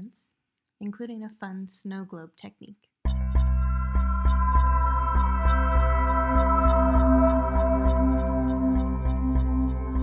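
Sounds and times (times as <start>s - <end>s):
deep bass pulse: 3.1s - 10.0s
ringing bell-like tones: 3.6s - 9.7s.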